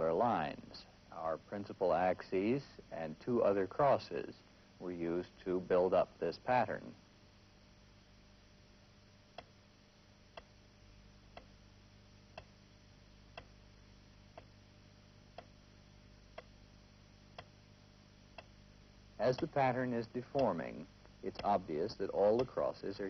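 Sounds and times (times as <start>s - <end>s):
low steady hum: 0.0s - 23.0s
timer ticking: 11.3s - 11.6s, 16.3s - 16.6s, 18.3s - 18.6s, 19.2s - 22.8s.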